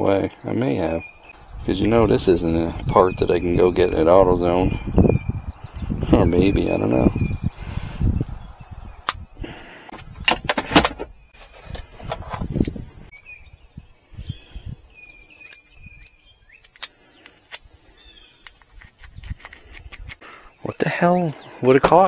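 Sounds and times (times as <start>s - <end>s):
rustling: 10.4s - 13.0s.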